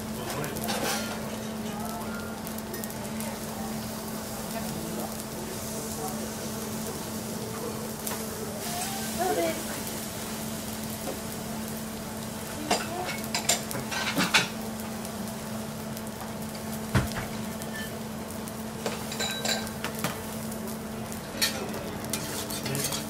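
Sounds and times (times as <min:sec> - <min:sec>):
rice sizzling on griddle: 0:00.0 - 0:23.0.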